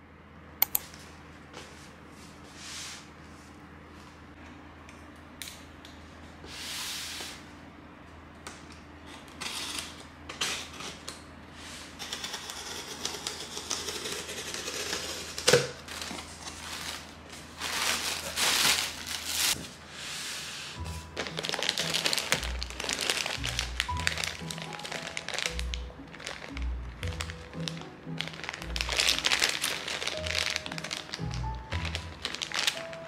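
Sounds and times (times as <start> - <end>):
packing tape peeled off: 12.0 - 19.6, 20.9 - 33.0.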